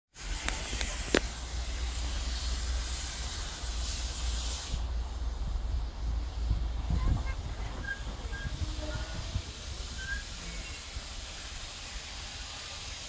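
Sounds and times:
steam locomotive hissing steam: 0.2s - 13.0s
wind rumble on microphone: 4.9s - 11.1s.

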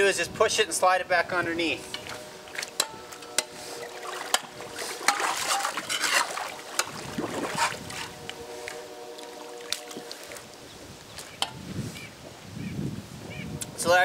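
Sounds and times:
water sloshing and splashing: 1.9s - 11.6s
spade knocking and scraping ice: 4.3s - 8.1s.

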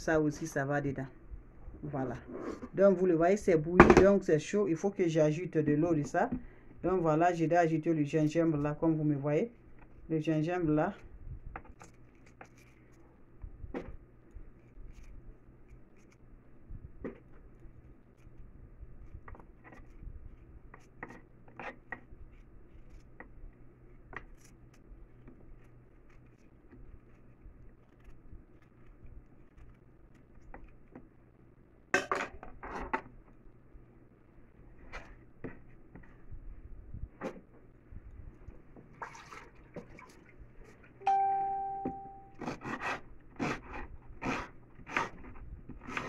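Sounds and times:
knife scraping ginger: 20.6s - 23.3s, 24.1s - 31.0s, 42.4s - 46.0s.

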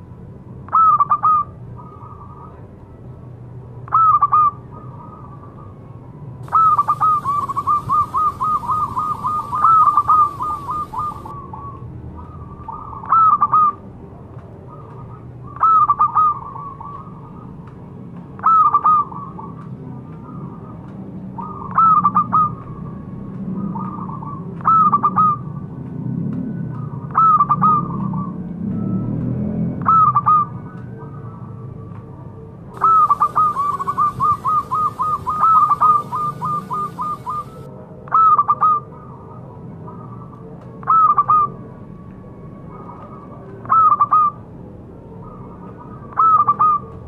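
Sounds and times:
dove cooing: 6.4s - 13.8s, 32.8s - 41.6s, 42.7s - 44.4s, 45.2s - 47.0s.

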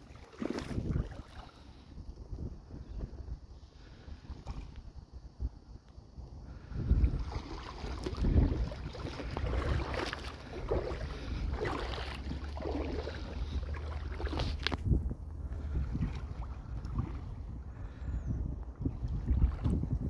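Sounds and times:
shallow sea water washing: 0.0s - 2.3s, 6.5s - 14.9s, 15.5s - 18.0s, 18.7s - 20.0s
wind buffeting microphone: 0.0s - 20.0s.

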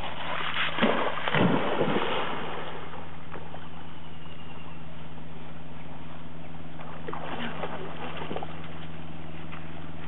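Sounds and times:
dog splashing in water: 0.0s - 3.0s, 6.8s - 8.9s
low hum: 0.0s - 10.0s.

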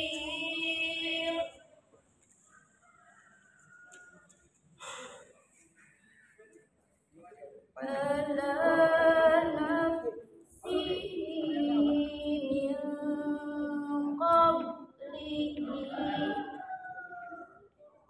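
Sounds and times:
woman chanting melodically: 0.0s - 1.6s, 7.8s - 16.9s.

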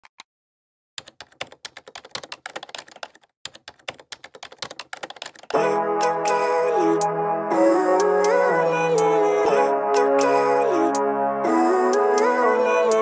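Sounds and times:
loud music: 5.6s - 13.0s.

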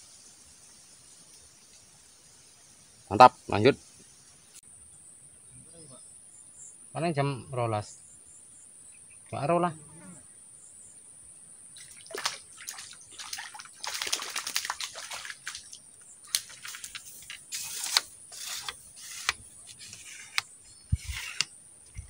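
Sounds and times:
water splashing and sloshing: 11.8s - 22.0s.

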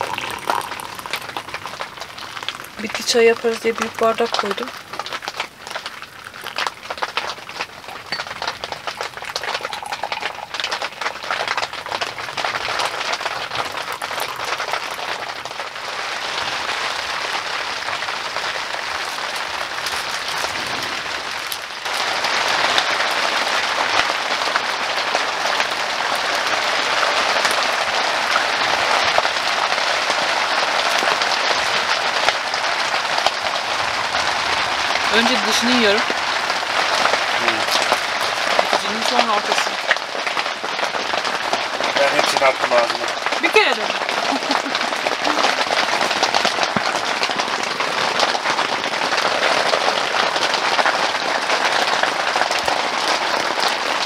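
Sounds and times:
heavy rain on tent fabric: 0.0s - 54.0s.

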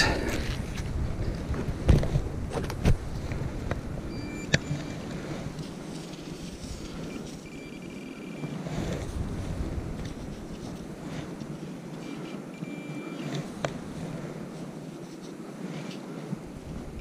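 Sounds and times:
metal detector high tone: 4.1s - 5.3s, 6.9s - 8.6s, 12.0s - 13.4s.

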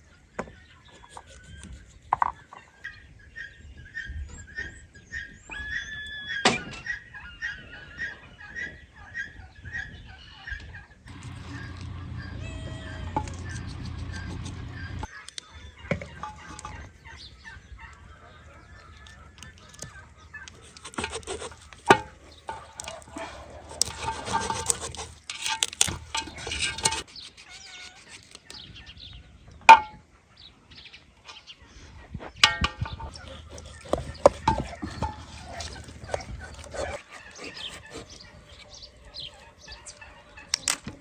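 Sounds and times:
fowl calling: 2.8s - 28.6s, 32.4s - 41.0s
low hum: 11.1s - 15.1s.

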